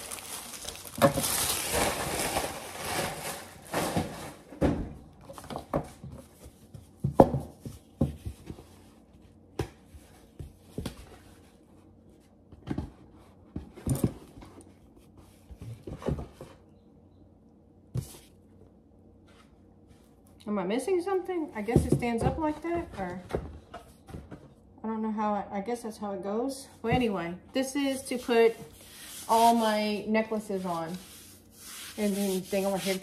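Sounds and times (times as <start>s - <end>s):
plastic wrapping crinkling: 0.0s - 4.5s.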